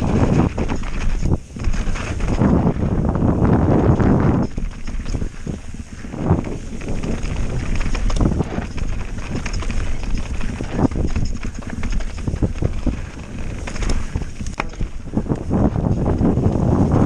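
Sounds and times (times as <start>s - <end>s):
bike rattling: 0.0s - 17.0s
bike tyres clattering over rocks: 0.0s - 17.0s
wind on microphone: 0.0s - 17.0s.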